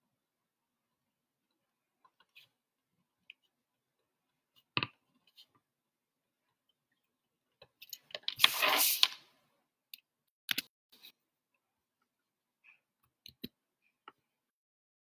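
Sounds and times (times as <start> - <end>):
paper rustling: 8.3 - 9.2.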